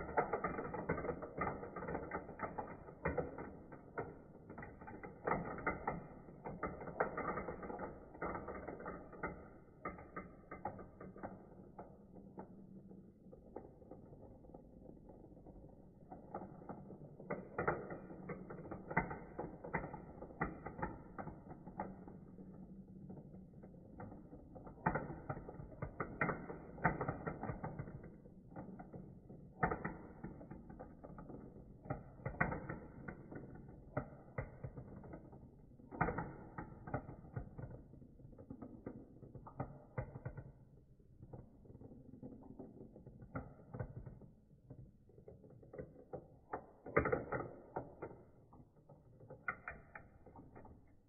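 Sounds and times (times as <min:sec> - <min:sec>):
marbles rattling down plastic run: 0:00.0 - 0:40.5.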